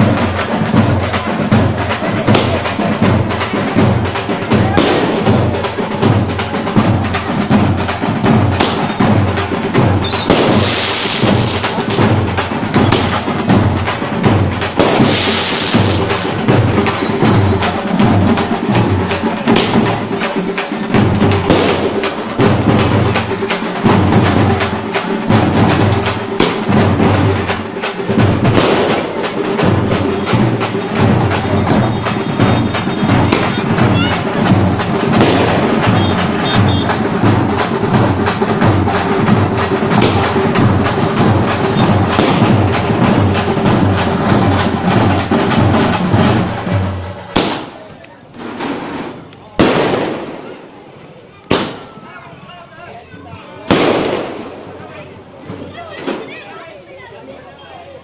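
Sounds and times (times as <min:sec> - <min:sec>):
fast drum beat: 0:00.0 - 0:47.6
firework bangs: 0:04.2 - 0:24.6, 0:25.3 - 0:52.1, 0:53.6 - 0:55.0
hissing crackling firework bursts: 0:10.0 - 0:12.1, 0:14.8 - 0:16.4.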